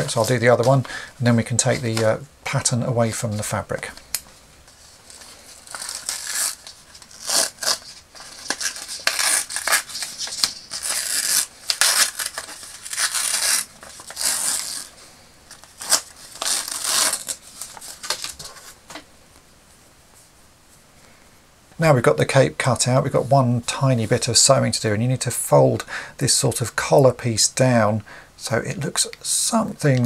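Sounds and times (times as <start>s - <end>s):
paper and tape peeling off: 5.1s - 18.8s.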